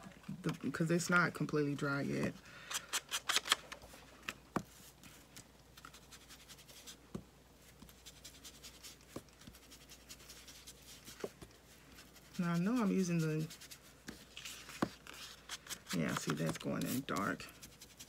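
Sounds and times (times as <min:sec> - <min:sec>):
scratchy rubbing on paper: 0:05.8 - 0:07.0, 0:07.6 - 0:18.0.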